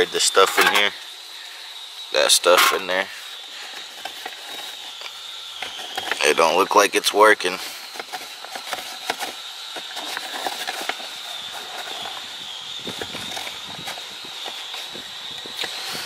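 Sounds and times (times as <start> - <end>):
rag scrubbing plastic cup holder: 0.2 - 0.9, 2.4 - 2.9.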